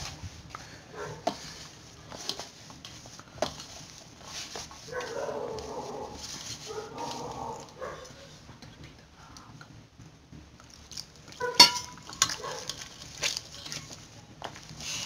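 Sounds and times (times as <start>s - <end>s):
hands kneading dough: 0.0s - 8.9s
knocks and clinks on metal bowl: 11.5s - 12.4s.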